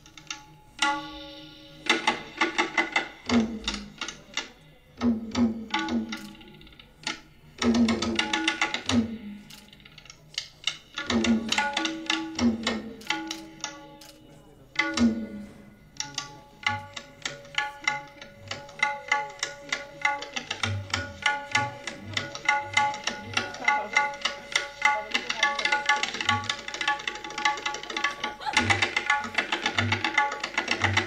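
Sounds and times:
tabla playing: 0.0 - 31.0.

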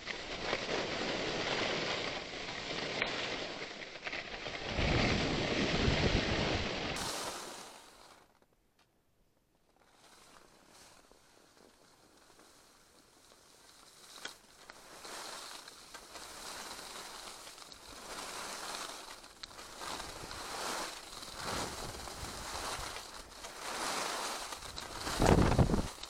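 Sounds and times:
skis scraping over snow: 0.0 - 8.4, 9.7 - 26.0
wind noise on microphone: 4.6 - 7.0, 21.4 - 23.0, 24.7 - 26.0.

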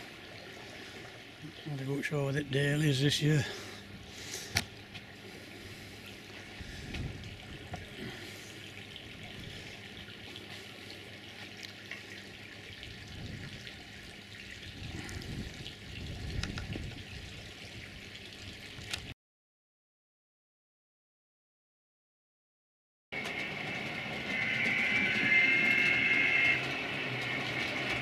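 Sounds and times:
fountain water trickling: 0.0 - 19.1.

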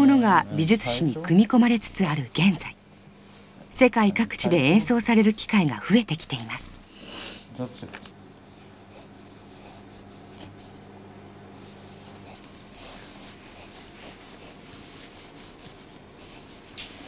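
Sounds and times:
steady low hum: 0.0 - 17.0
hand writing on paper: 12.3 - 17.0.

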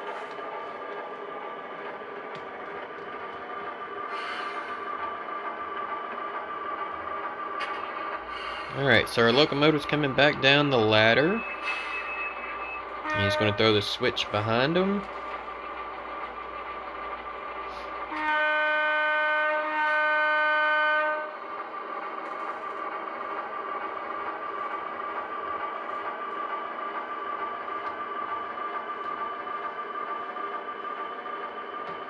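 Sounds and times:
constant whine: 4.8 - 19.1
model locomotive horn blasts: 13.0 - 13.9, 18.1 - 21.4.

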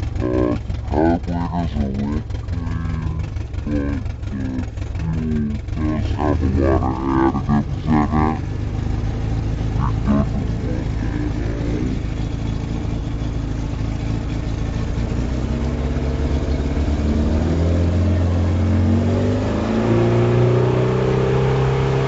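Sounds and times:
outboard motor speeding up: 0.0 - 22.0.

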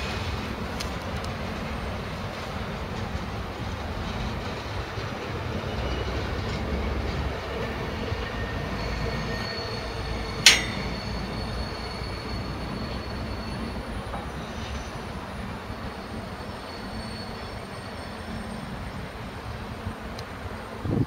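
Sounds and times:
diesel locomotive engine rumble: 0.0 - 21.0
high wheel squeal: 7.9 - 19.1
sharp metal clank: 10.4 - 11.6.

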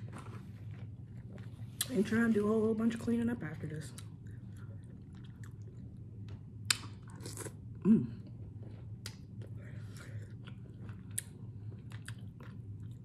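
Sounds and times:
steady low hum: 0.0 - 13.0
person chewing with wet smacks: 3.9 - 13.0.

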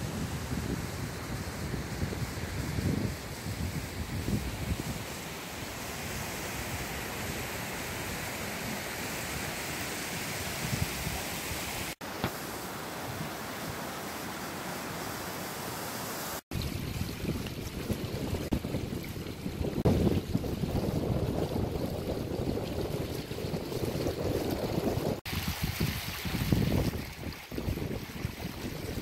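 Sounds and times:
wind buffeting microphone: 0.0 - 5.2, 16.5 - 29.0
stream and waterfall rushing: 0.0 - 16.5.

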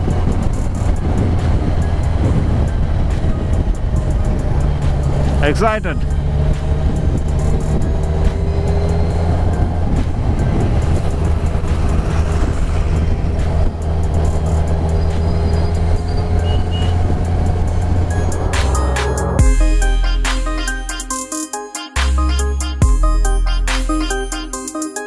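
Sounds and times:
wind rush: 0.0 - 16.1
motorcycle engine cruising: 0.0 - 19.5.

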